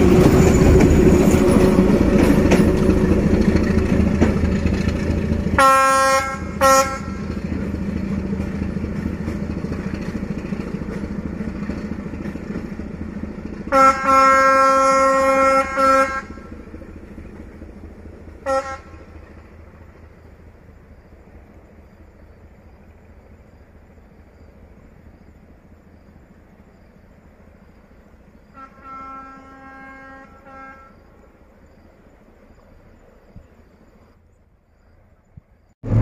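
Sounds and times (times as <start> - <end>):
locomotive engine rumble: 0.0 - 34.4, 35.5 - 36.0
locomotive horn: 5.4 - 7.4, 13.7 - 16.6, 18.4 - 19.1, 28.5 - 31.2.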